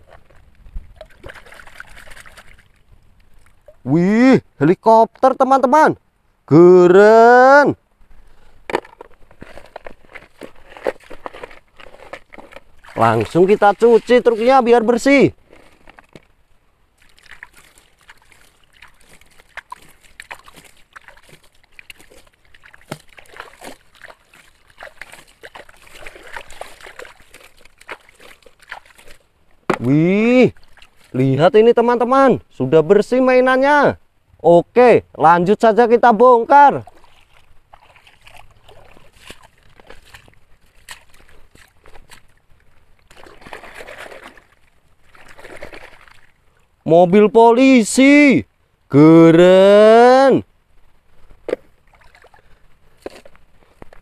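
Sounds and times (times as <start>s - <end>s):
water splashing and trickling: 0.0s - 4.3s, 8.3s - 32.0s, 36.6s - 46.8s, 51.7s - 54.0s
clicks and clatters of toys and gravel: 8.7s - 13.2s, 15.4s - 16.3s.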